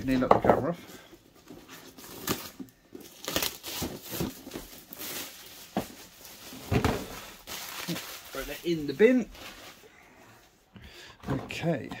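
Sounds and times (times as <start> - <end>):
plastic wrapping tearing and crumpling: 1.8 - 9.9.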